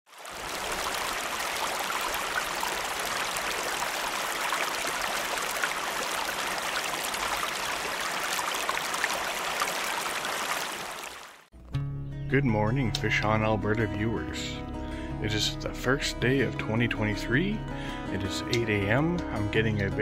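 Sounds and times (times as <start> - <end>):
river water flowing over stones: 0.1 - 11.5.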